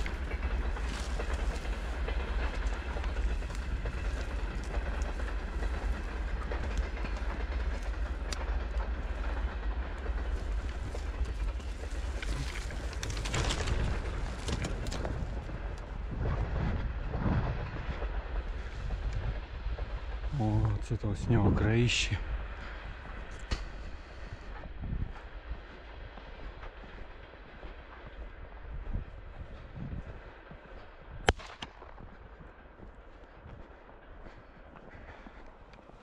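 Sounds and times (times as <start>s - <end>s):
footsteps crunching wet snow: 0.0s - 5.9s
steady low rumble: 0.0s - 36.0s.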